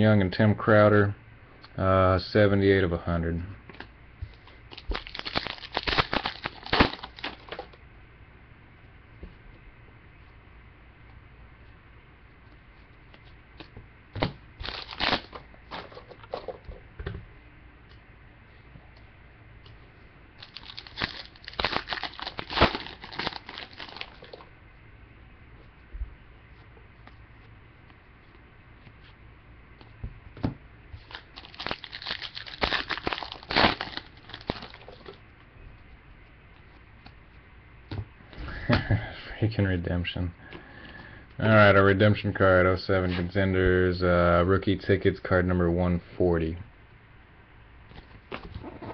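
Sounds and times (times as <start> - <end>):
foil card packs crinkling: 4.5 - 7.8, 14.6 - 16.5, 20.4 - 24.5, 31.0 - 35.2
trading cards snapping and rustling: 4.7 - 7.8, 13.6 - 16.6, 20.4 - 24.4, 31.0 - 35.2.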